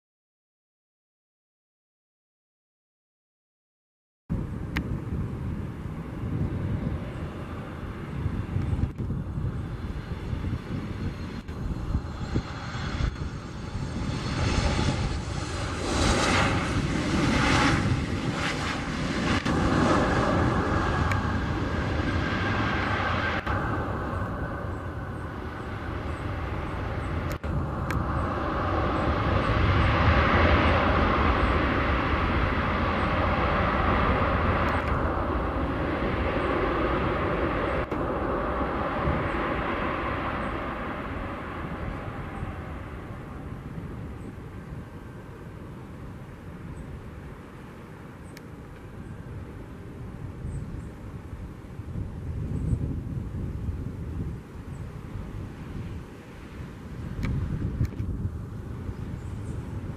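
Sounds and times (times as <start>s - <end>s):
jet engine whine: 4.3s - 59.9s
reverse thrust engine rush: 5.7s - 45.4s.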